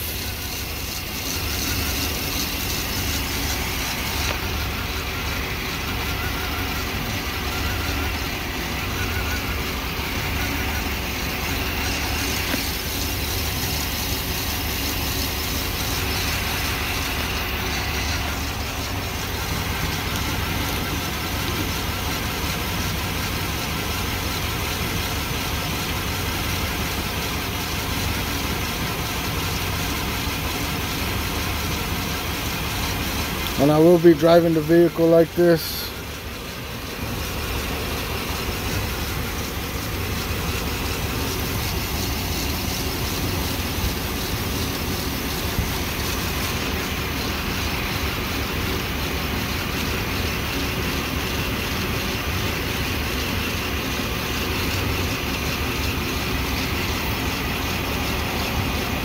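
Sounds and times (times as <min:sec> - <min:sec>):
truck engine idling: 0:00.0 - 0:59.0.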